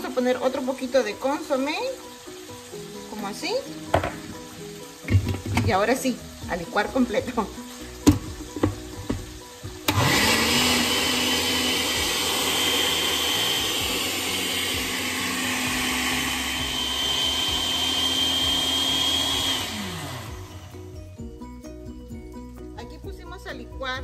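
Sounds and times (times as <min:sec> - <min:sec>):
blender running: 0:07.3 - 0:21.0.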